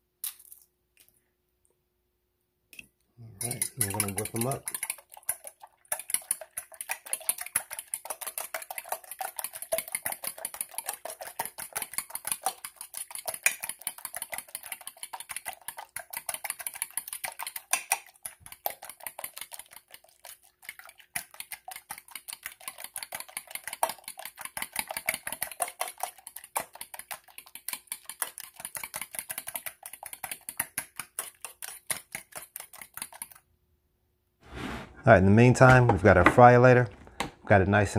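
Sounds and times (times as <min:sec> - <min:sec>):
fork beating eggs in metal bowl: 0:03.2 - 0:33.4.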